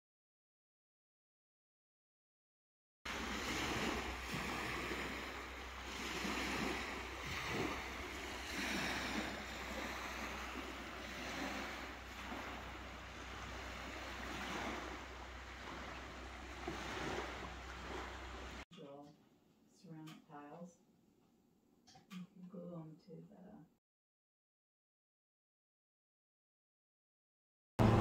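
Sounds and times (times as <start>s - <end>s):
waves washing onto sandy shore: 3.1s - 18.6s
wind rumble on microphone: 3.1s - 18.6s.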